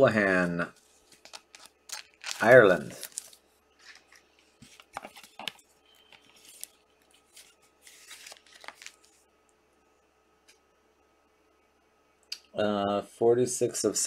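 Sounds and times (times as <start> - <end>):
card scraping and rustling: 0.8 - 9.2.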